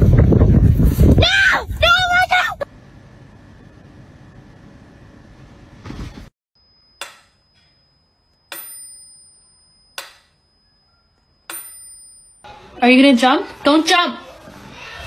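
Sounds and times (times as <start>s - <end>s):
high bell-like ring: 6.8s - 12.5s.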